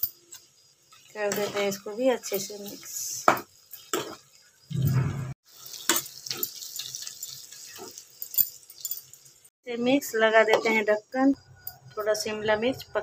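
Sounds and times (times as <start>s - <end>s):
faint frying sizzle: 0.0s - 4.7s, 5.4s - 10.9s
spoon scraping a pan: 0.3s - 5.0s, 5.6s - 8.8s
short low rumble: 4.7s - 5.4s.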